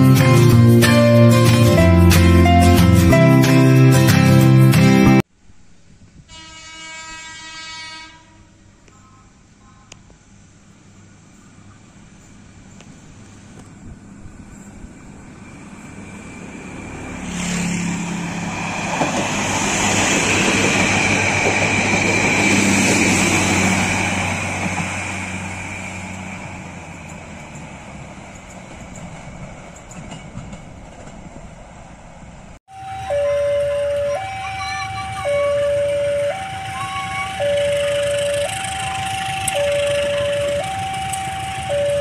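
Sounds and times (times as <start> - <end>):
railcar engine hum: 0.0 - 42.0
train wheels on rail: 9.9 - 33.2, 34.0 - 42.0
two-note electronic chime: 32.7 - 42.0.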